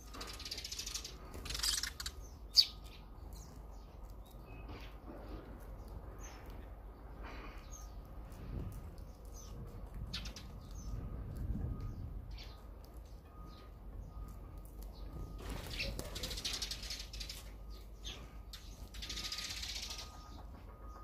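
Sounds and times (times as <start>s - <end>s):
fluttering wingbeats: 0.0s - 2.2s, 15.3s - 17.5s
sparrows chirping: 0.0s - 21.0s.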